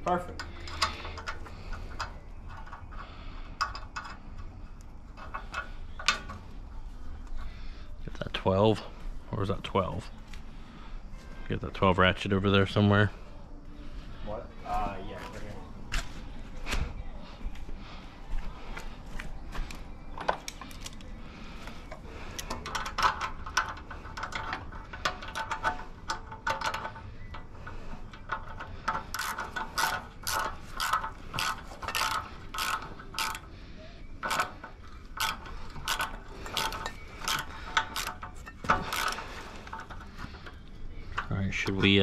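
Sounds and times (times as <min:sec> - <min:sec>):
ratchet wrench clicking: 0:22.3 - 0:33.5, 0:34.2 - 0:40.6.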